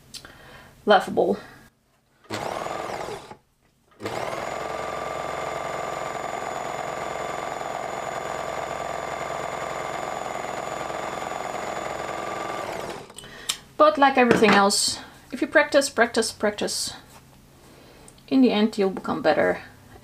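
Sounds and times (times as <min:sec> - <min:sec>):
overlocker motor stitching: 0:02.2 - 0:13.2.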